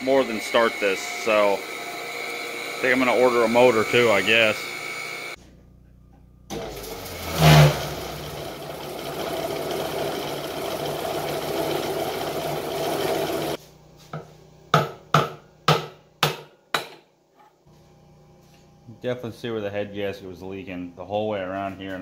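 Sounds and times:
air compressor running roughly: 0.0 - 5.4, 7.8 - 13.6.

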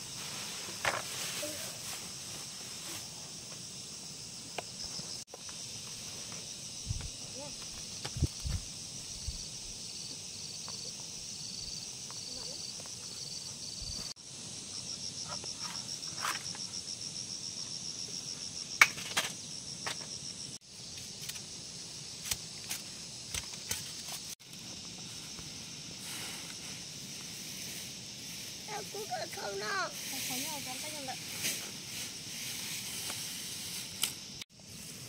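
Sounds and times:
plants rustling when handled: 0.0 - 3.4
insects chirping: 0.0 - 35.0.

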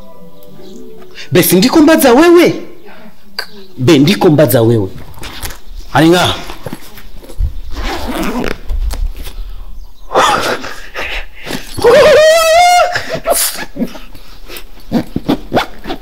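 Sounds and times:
high wavering cry: 11.6 - 13.9.

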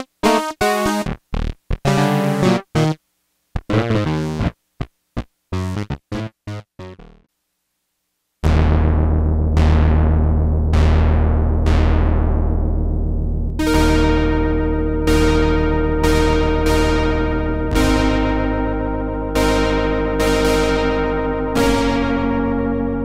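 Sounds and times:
synthesizer low sustained chords: 8.4 - 23.0
synthesizer staccato chords: 8.4 - 23.0.

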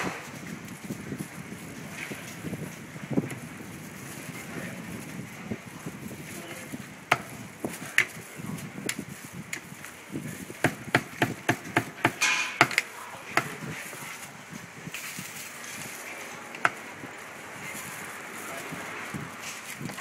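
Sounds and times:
cleaver chopping on wooden block: 10.6 - 13.6.

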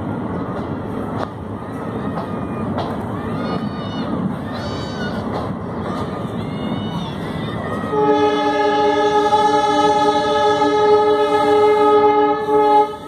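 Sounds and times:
moving train running noise: 0.0 - 13.0
train horn blast: 7.9 - 13.0.

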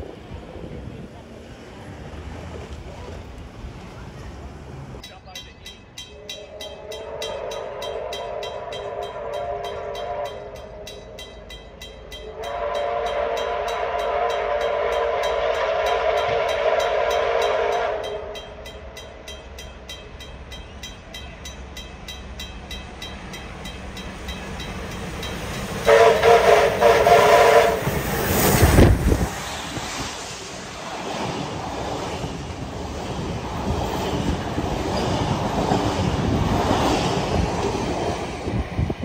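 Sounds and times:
steam locomotive whistle: 6.1 - 11.4, 12.0 - 18.6, 25.5 - 28.9.

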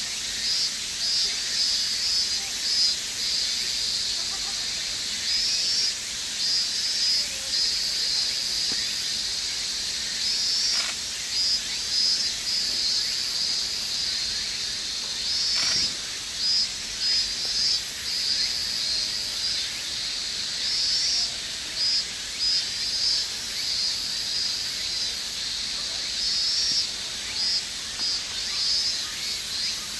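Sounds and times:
insects shrilling: 0.0 - 29.9.

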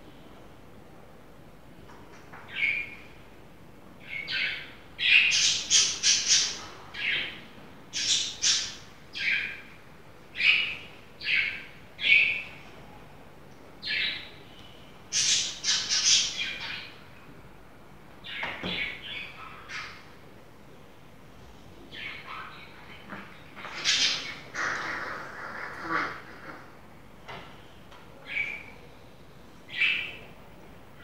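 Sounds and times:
bird squawking and chirping: 15.1 - 16.9, 23.6 - 26.7.

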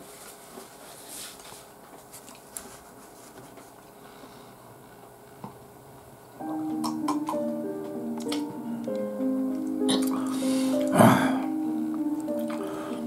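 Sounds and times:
paper tissue rustling: 0.0 - 4.0.

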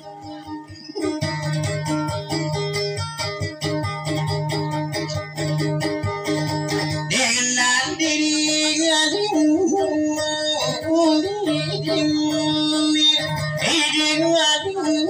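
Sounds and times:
plucked electric guitar: 0.0 - 15.0
person singing ornamented vocal: 7.1 - 15.0.

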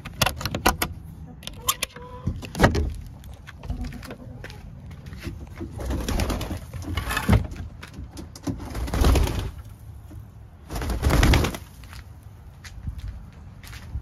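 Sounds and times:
wooden coop door rustling and bumping: 0.2 - 3.0, 5.2 - 9.5
hens clucking: 1.1 - 2.5, 3.3 - 7.2.

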